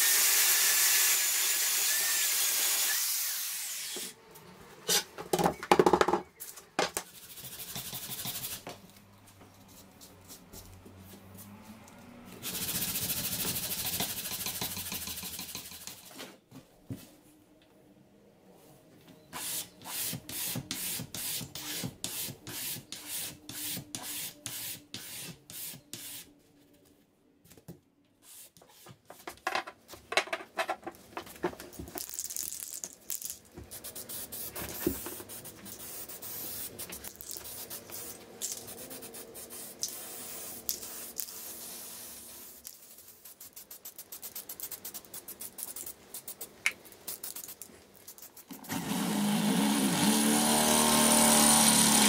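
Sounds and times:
sandpaper rubbing on wood: 0:12.4 - 0:16.1.

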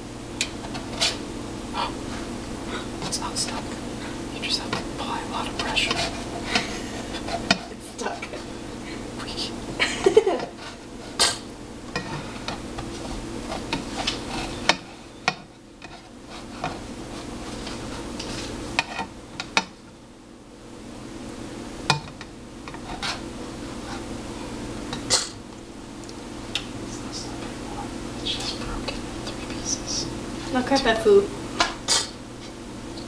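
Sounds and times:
steady low hum: 0:00.0 - 0:33.0
spatula scraping frying pan: 0:05.8 - 0:08.5, 0:13.4 - 0:15.1, 0:22.7 - 0:24.1.

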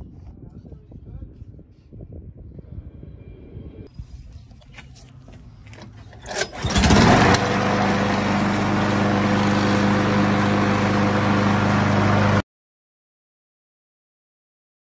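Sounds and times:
lawn mower engine starting and running: 0:05.6 - 0:12.4.

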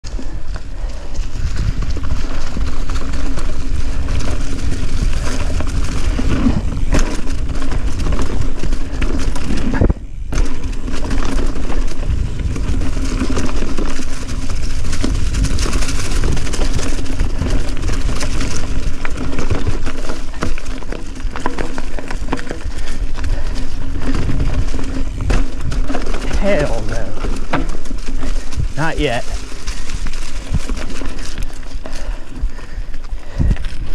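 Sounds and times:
bike rattling over bumps: 0:00.0 - 0:33.9
wind rumble on microphone: 0:00.0 - 0:33.9
tyres crunching through leaves: 0:10.4 - 0:33.9.

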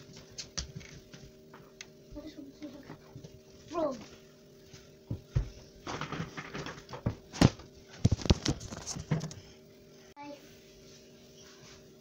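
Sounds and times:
knocks and thumps: 0:05.0 - 0:09.4.

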